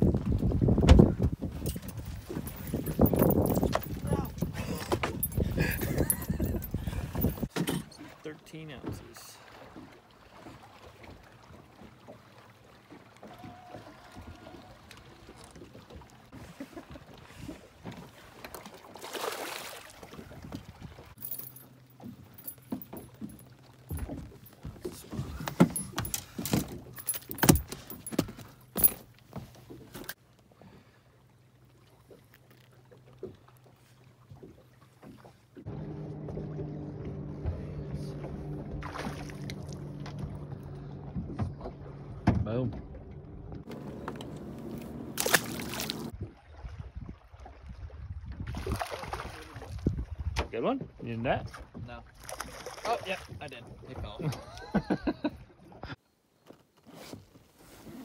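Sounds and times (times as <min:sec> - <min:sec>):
knocks and metallic clinks on boat deck: 0:00.8 - 0:08.0, 0:21.2 - 0:30.2, 0:40.0 - 0:43.0
splash in water: 0:18.0 - 0:21.2, 0:38.8 - 0:40.1, 0:45.1 - 0:49.9, 0:52.2 - 0:53.4
fish splashing out of water: 0:18.8 - 0:20.3, 0:38.8 - 0:39.9, 0:45.1 - 0:46.2, 0:48.5 - 0:49.7
soft knocks on boat: 0:41.1 - 0:42.9.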